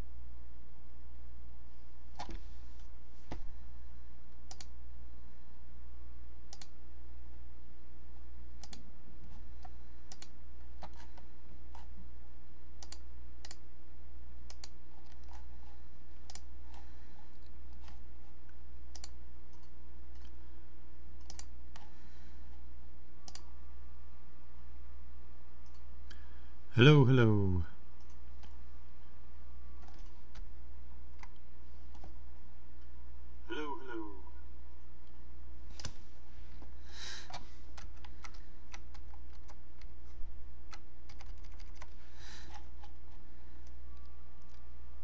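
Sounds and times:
steady low hum: 0:00.0 - 0:41.1
keyboard and mouse clicks: 0:04.4 - 0:04.7, 0:06.5 - 0:06.8, 0:08.6 - 0:08.9, 0:09.6 - 0:11.9, 0:12.8 - 0:13.6, 0:14.5 - 0:15.5, 0:16.2 - 0:16.8, 0:18.9 - 0:20.3, 0:21.2 - 0:21.9, 0:37.3 - 0:44.6.

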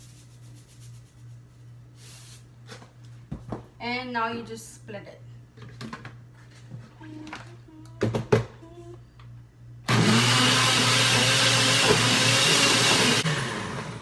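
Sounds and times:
blender motor running: 0:09.8 - 0:14.0.

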